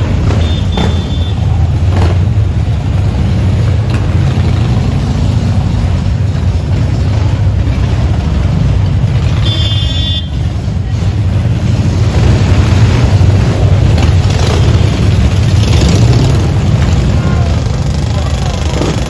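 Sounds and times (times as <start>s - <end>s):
motorcycle engines rumbling: 0.0s - 19.0s
horn toot: 0.2s - 1.5s, 9.2s - 10.5s.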